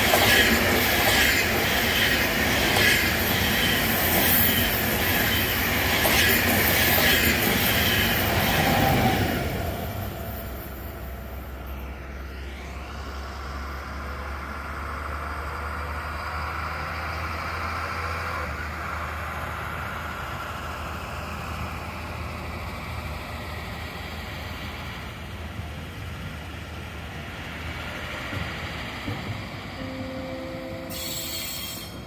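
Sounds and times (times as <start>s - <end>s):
diesel engine rumbling: 9.0s - 31.3s.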